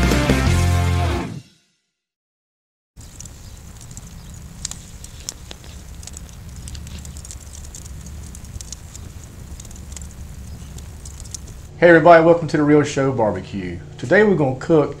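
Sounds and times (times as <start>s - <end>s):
wood fire crackling and popping: 3.0s - 11.8s
fire low rumble: 3.0s - 14.7s.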